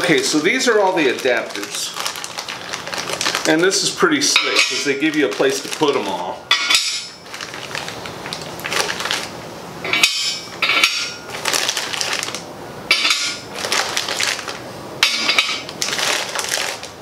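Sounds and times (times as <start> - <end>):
plastic bag crinkling: 0.0 - 9.4, 11.0 - 17.0
metal parts clinking: 9.9 - 11.4, 12.9 - 13.5, 15.0 - 15.7.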